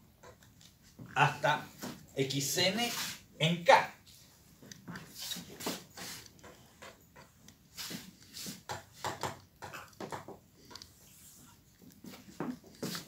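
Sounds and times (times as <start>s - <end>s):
chalk tapping and scraping on blackboard: 2.7s - 3.3s, 5.0s - 13.0s.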